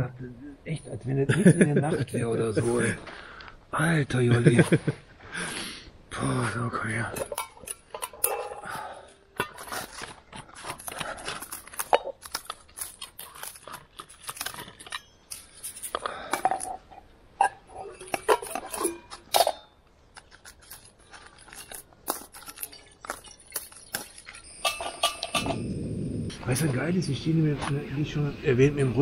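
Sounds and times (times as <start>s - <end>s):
metal cookware clinking: 7.1s - 10.0s, 11.4s - 25.7s.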